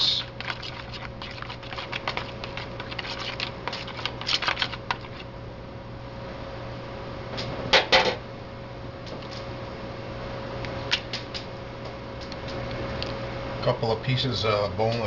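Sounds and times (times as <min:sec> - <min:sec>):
wet clicks of stirring: 0:00.2 - 0:05.2.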